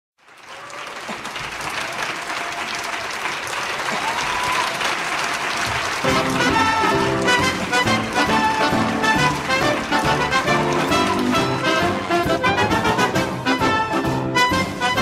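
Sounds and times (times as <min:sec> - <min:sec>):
audience applause: 0:00.2 - 0:13.6
music: 0:06.0 - 0:15.0.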